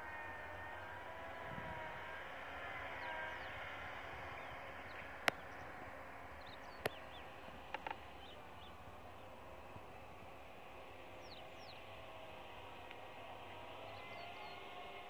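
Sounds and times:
distant machinery hum: 0:00.0 - 0:15.0
small birds chirping: 0:03.0 - 0:10.4, 0:11.0 - 0:13.0, 0:13.7 - 0:15.0.

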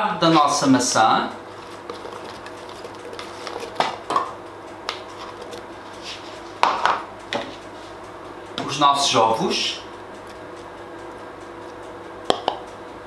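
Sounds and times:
spatula scraping a bowl: 0:01.5 - 0:04.1, 0:05.1 - 0:06.4.

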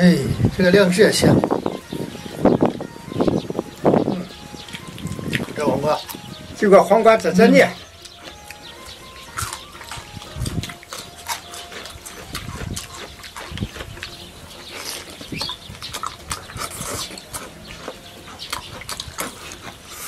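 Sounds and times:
wet chewing and lip-smacking: 0:04.3 - 0:06.4, 0:07.8 - 0:20.0.

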